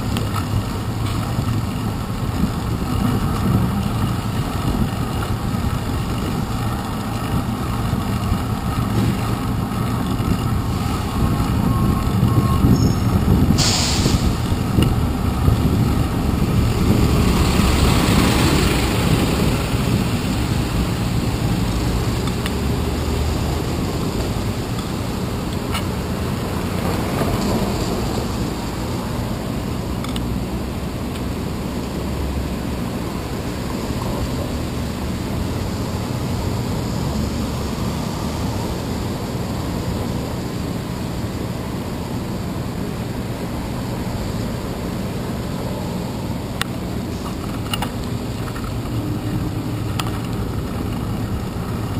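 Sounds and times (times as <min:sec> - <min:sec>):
city traffic rumble: 0:00.0 - 0:51.9
wind: 0:00.0 - 0:51.9
truck air brake hiss: 0:12.8 - 0:14.4.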